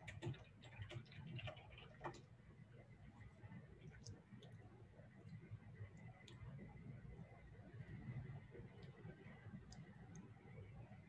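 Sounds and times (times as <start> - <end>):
faint room hum: 0.0 - 11.0
faint clicks: 8.7 - 10.4.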